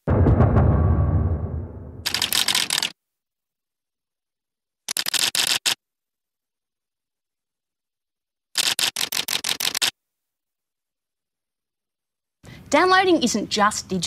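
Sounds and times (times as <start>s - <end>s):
rapid mechanical clicking: 2.0s - 2.9s, 4.9s - 5.8s, 8.6s - 9.9s.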